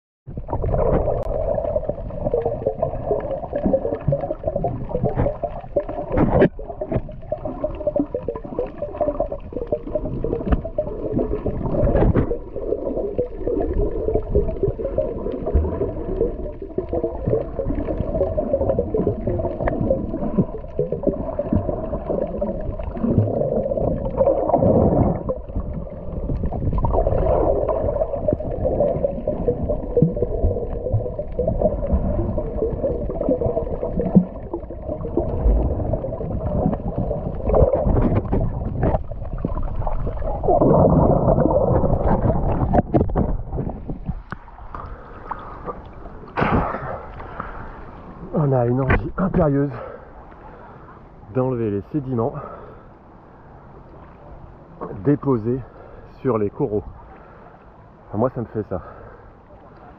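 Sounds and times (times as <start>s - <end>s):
muffled underwater rush of water: 0.3s - 59.9s.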